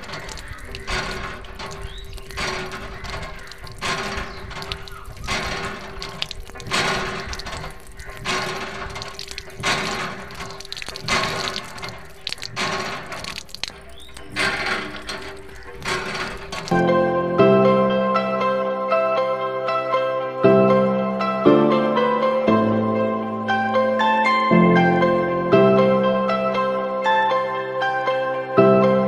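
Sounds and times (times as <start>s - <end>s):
water stream splashing on plastic: 0.0s - 17.0s.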